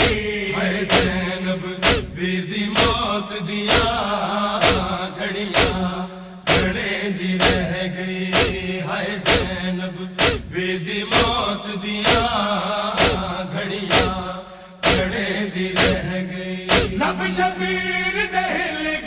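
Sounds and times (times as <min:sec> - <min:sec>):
men chanting a mourning lament: 0:00.0 - 0:19.0
hands beating on chests: 0:00.9 - 0:01.2, 0:01.8 - 0:02.2, 0:02.8 - 0:03.0, 0:03.7 - 0:04.0, 0:04.6 - 0:04.9, 0:05.6 - 0:05.9, 0:06.5 - 0:06.8, 0:07.4 - 0:07.7, 0:08.4 - 0:08.7, 0:09.3 - 0:09.6, 0:10.2 - 0:10.5, 0:11.2 - 0:11.4, 0:12.1 - 0:12.3, 0:13.0 - 0:13.3, 0:13.9 - 0:14.2, 0:14.8 - 0:15.2, 0:15.8 - 0:16.0, 0:16.7 - 0:17.0.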